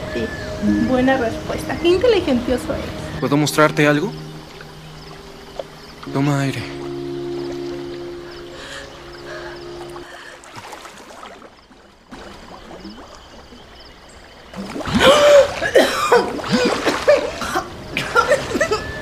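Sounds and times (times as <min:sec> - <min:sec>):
woman coughing and gasping: 0:14.9 - 0:18.8.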